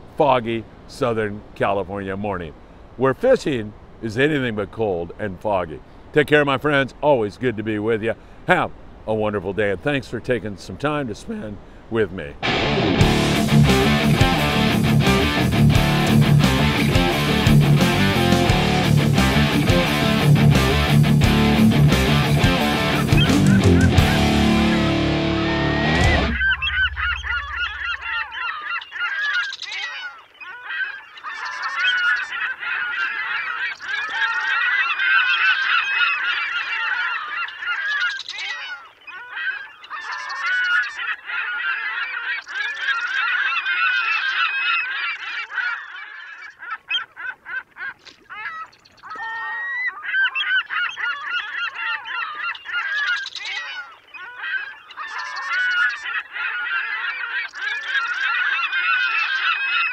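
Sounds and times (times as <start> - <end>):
flock of birds calling: 12.4 - 59.9.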